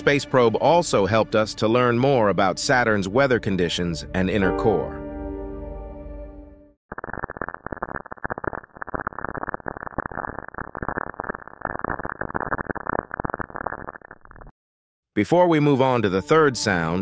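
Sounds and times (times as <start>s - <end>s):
dense irregular crackling pops: 6.9s - 14.5s.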